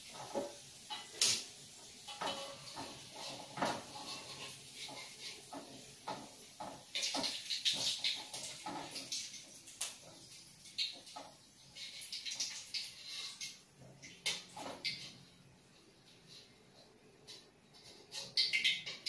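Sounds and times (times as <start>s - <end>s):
spatula scraping in a wok: 0.0s - 9.4s, 11.7s - 13.6s
shallots frying in oil: 0.0s - 19.0s.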